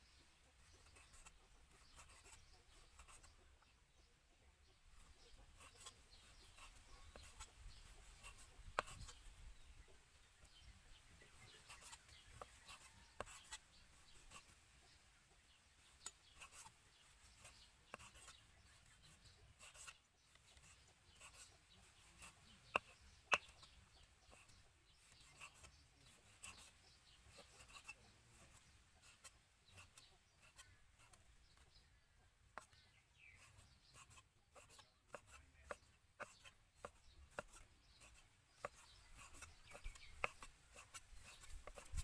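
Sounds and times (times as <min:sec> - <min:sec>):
knife slicing meat: 0:33.4 - 0:42.0.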